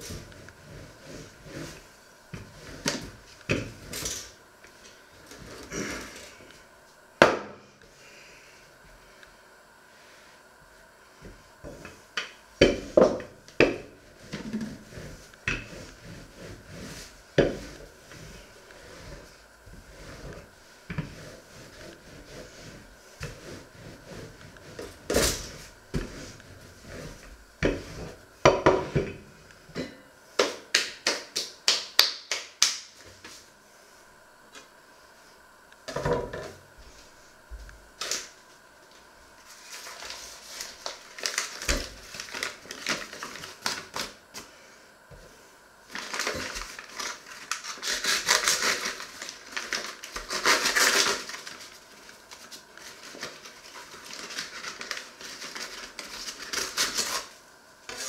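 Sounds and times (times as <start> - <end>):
rolling pin on wooden board: 0.0 - 4.3, 11.2 - 29.3.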